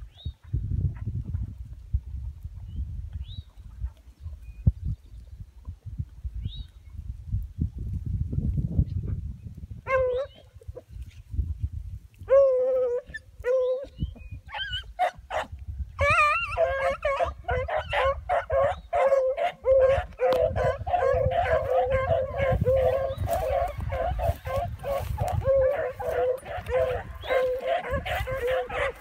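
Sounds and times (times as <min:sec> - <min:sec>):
beagles baying: 0:16.0 - 0:29.0.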